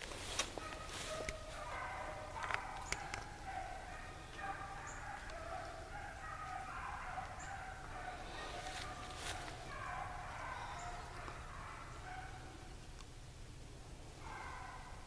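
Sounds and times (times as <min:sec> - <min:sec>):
brush snapping underfoot: 0:00.0 - 0:01.4, 0:02.4 - 0:03.3, 0:08.6 - 0:09.6
distant hounds baying: 0:00.4 - 0:12.8, 0:14.2 - 0:15.0.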